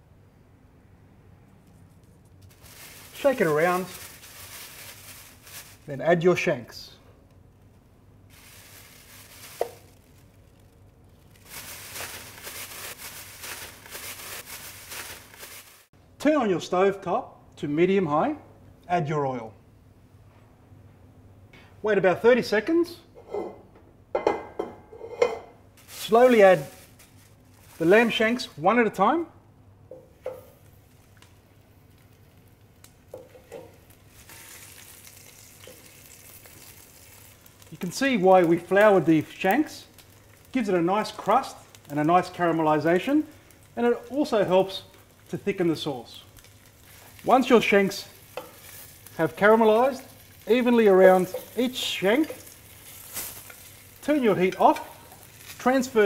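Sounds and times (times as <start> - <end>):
plastic bag rustling and crinkling: 1.8 - 6.3, 8.3 - 15.9, 25.8 - 28.6, 30.5 - 56.0
meat sizzling in oil: 8.3 - 10.6, 11.2 - 15.9, 30.4 - 56.0.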